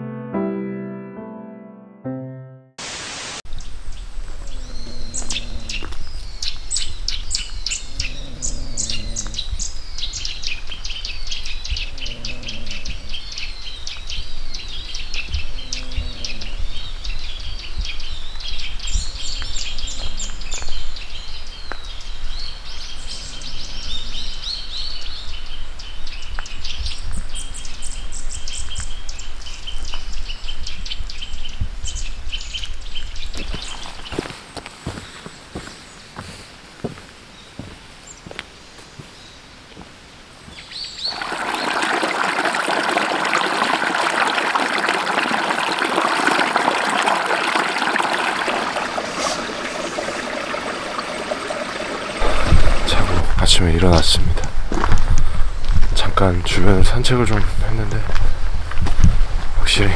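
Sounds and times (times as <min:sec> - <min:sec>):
small birds chirping and whistling: 0:03.5 - 0:34.3.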